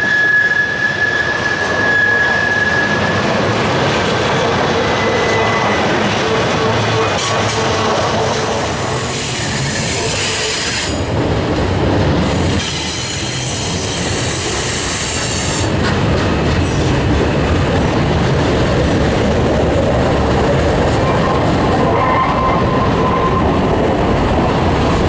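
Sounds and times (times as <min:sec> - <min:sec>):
high wheel squeal: 0:00.0 - 0:03.5, 0:04.4 - 0:07.7, 0:08.7 - 0:11.0, 0:21.2 - 0:23.7
freight train wheels rumbling: 0:00.0 - 0:25.0.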